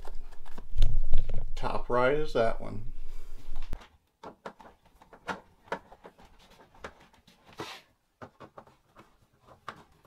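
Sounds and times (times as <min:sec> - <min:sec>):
brief scrape: 0:07.5 - 0:07.9.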